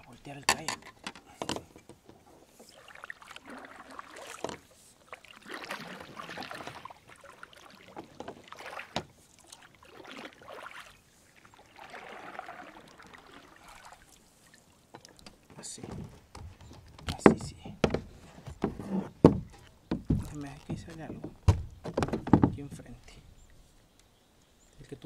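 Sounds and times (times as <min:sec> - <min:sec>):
paddle splashing in water: 0:00.0 - 0:23.9
sharp paddle knocks: 0:17.0 - 0:22.7.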